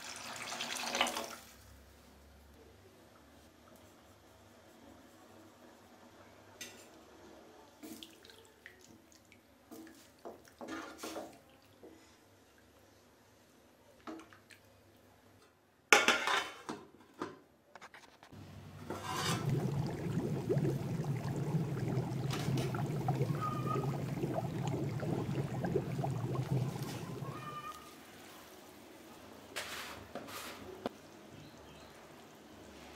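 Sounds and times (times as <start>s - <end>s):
wooden spatula scraping pot: 18.0s - 27.8s
curry boiling: 18.4s - 28.0s.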